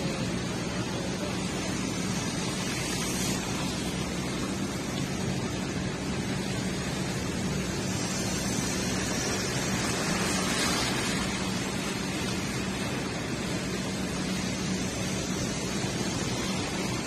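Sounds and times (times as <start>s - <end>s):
low steady car hum: 0.0s - 17.0s
tyres hissing on wet pavement: 0.0s - 17.0s
car passing close by: 8.0s - 12.1s.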